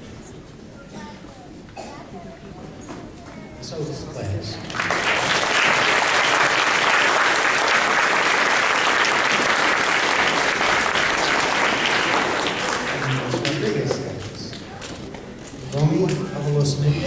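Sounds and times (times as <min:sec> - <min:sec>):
audience applauding: 0:04.6 - 0:14.8.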